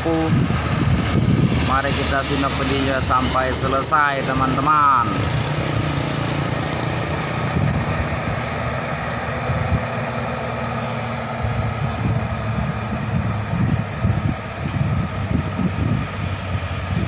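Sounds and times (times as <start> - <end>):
diesel truck engine labouring: 0.0 - 17.0.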